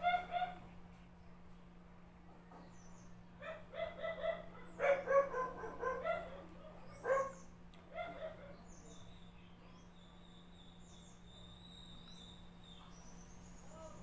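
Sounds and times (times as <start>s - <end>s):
dog yipping: 0.0s - 0.6s, 3.4s - 8.5s.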